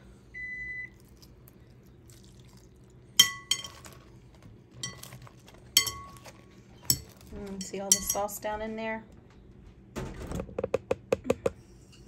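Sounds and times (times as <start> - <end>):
metal pan clinking on ceramic bowl: 3.2 - 3.9, 5.8 - 6.3, 6.9 - 8.3.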